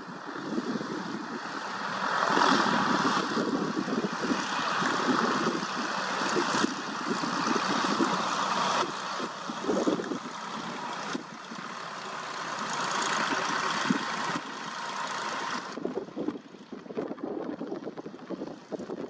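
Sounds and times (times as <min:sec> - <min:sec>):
gusty wind buffeting microphone: 0:00.0 - 0:19.0
light aircraft engine taxiing: 0:00.0 - 0:19.0.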